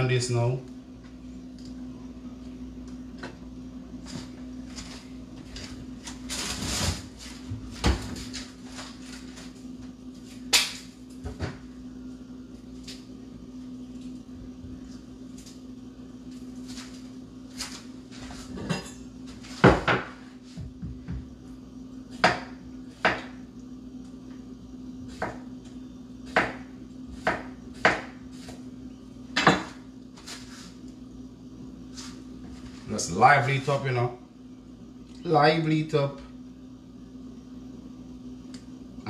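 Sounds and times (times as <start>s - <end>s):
steady low hum: 0.0s - 39.0s
dishes knocking on counter: 19.6s - 20.2s.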